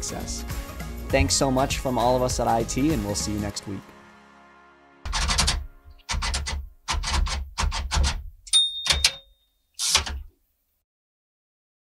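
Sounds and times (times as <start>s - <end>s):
typewriter key clacks: 5.1s - 10.3s
short high ding: 8.5s - 9.6s.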